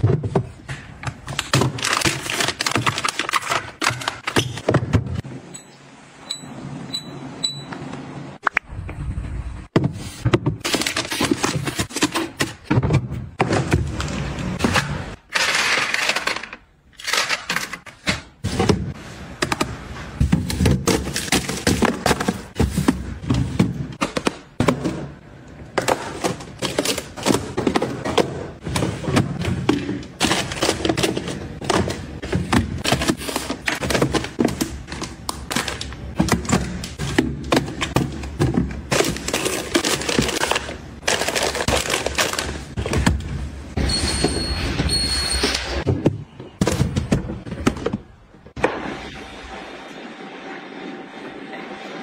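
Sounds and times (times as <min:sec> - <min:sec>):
plastic items clattering in drawer: 0:00.0 - 0:05.2, 0:09.8 - 0:43.5.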